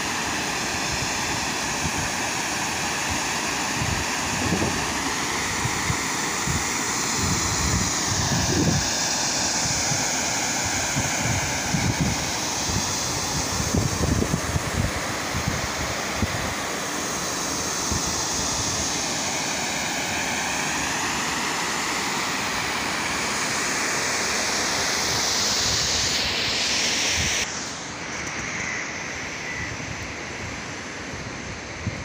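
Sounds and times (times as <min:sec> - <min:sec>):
wind buffeting microphone: 0:05.6 - 0:08.9, 0:10.7 - 0:16.5.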